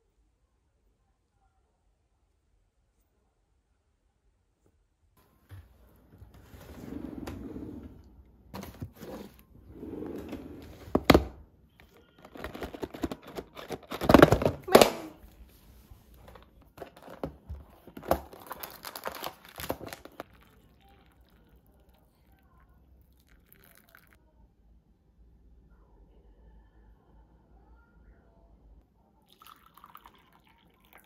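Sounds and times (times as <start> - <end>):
cardboard box and paper rustling: 12.2 - 14.9, 16.3 - 20.2.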